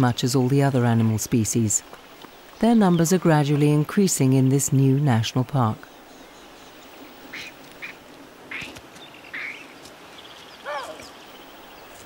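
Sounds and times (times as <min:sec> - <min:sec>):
faint outdoor background: 0:00.0 - 0:12.0
wild animal calls: 0:10.6 - 0:11.2.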